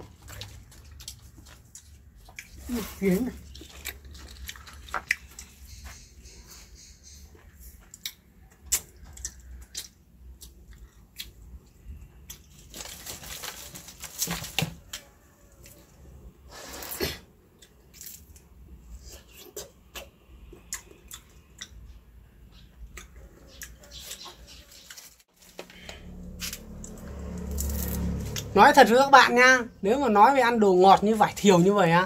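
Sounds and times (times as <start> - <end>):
lychee skins crackling: 0.0 - 5.7, 8.0 - 15.9, 22.9 - 28.6
chewing: 0.0 - 6.3, 7.3 - 12.8, 17.5 - 22.0
leafy branches rustling: 12.6 - 14.9.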